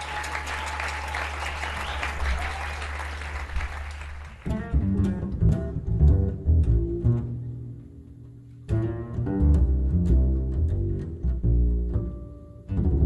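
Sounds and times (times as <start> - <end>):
audience applause: 0.0 - 4.5
double bass plucked notes: 4.4 - 13.0
double bass low held note: 4.5 - 13.0.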